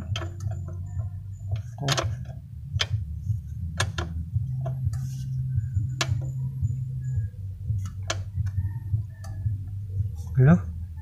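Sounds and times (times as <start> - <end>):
hand tools clicking and tapping: 0.0 - 3.0, 3.8 - 5.0, 5.9 - 6.4, 7.8 - 8.6
steady low hum: 0.0 - 11.0.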